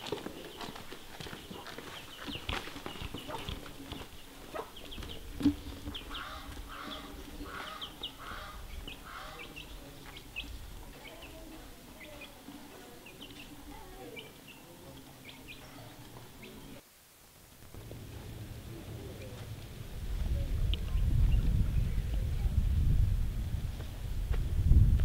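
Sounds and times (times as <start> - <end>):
chickens clucking: 0.0 - 16.8
small birds chirping: 0.0 - 16.8.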